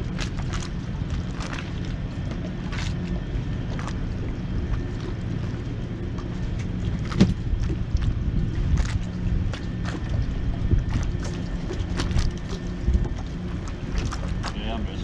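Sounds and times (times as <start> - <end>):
engine humming: 0.0 - 15.0
knocks against boat: 6.6 - 7.8.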